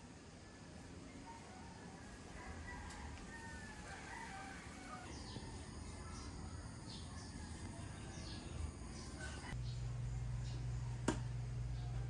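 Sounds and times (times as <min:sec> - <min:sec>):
distant rooster crowing: 0:00.4 - 0:09.6
small birds chirping: 0:05.0 - 0:12.0.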